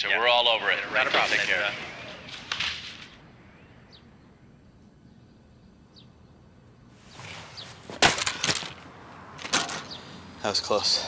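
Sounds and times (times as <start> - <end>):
faint bird chirps: 3.1 - 7.8
rustling and clattering: 7.0 - 10.0.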